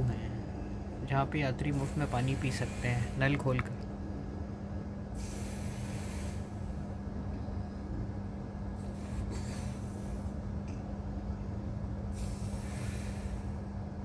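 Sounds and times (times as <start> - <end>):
short bursts of hissing: 1.8 - 3.3, 5.2 - 6.6, 12.1 - 13.5.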